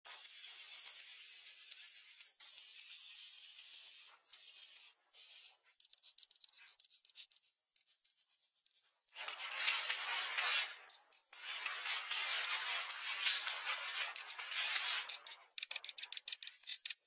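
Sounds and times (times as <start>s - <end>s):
short scraping strokes on wood: 9.2s - 16.2s.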